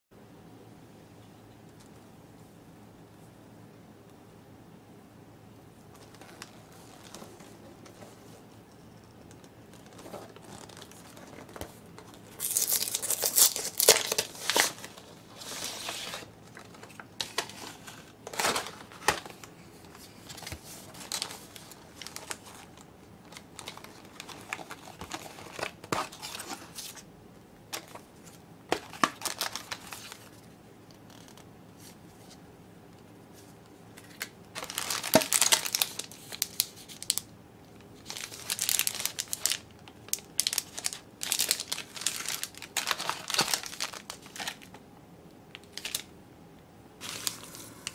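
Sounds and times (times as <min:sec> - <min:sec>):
plastic wrap crinkling: 0:05.9 - 0:08.2, 0:09.2 - 0:27.0, 0:27.8 - 0:30.4, 0:34.0 - 0:37.3, 0:37.9 - 0:44.8, 0:45.5 - 0:46.1, 0:47.0 - 0:47.9.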